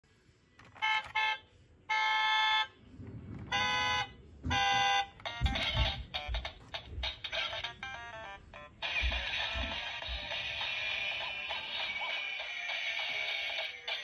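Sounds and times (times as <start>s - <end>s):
toy car electronic honks: 0.8s - 2.8s, 3.5s - 5.6s.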